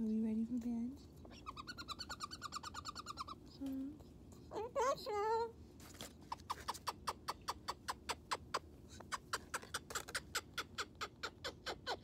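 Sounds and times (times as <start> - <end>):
cockatoo making sharp clicks: 6.4 - 11.2.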